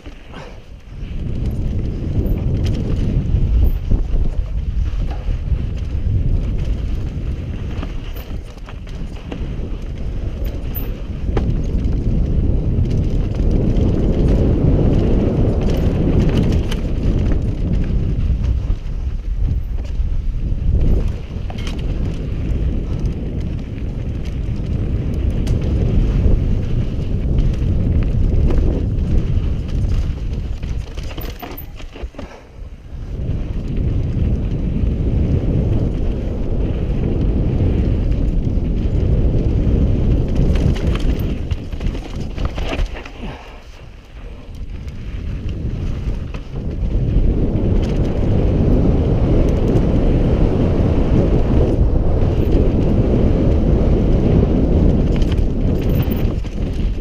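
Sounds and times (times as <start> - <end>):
bike knocks and rattles: 0.0 - 50.4, 51.5 - 57.0
bike tyre noise on dirt: 0.0 - 57.0
wind rush: 0.0 - 57.0.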